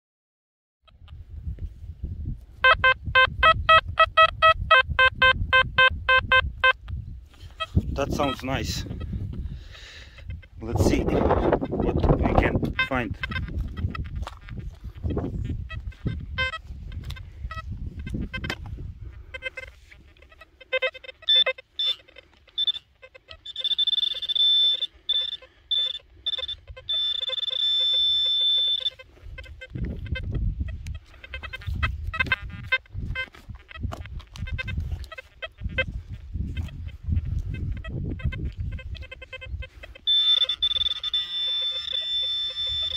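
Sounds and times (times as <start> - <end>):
metal detector beeping: 2.6 - 9.4, 10.2 - 42.9.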